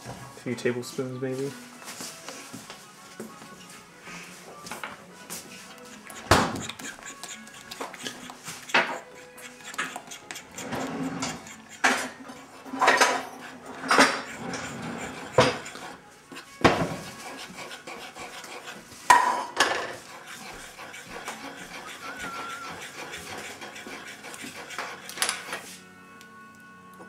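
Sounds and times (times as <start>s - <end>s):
dishes clinking and knocking: 19.1s - 20.0s.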